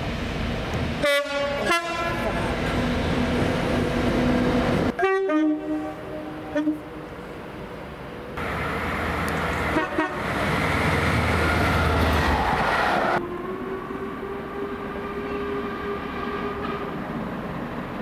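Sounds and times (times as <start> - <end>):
electric train rushing past: 0.0 - 5.0, 8.4 - 18.0.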